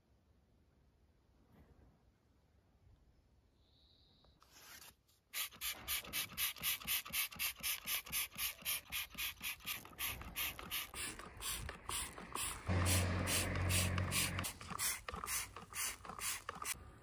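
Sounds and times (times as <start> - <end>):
trigger sprayer squirting foam: 5.4 - 16.8.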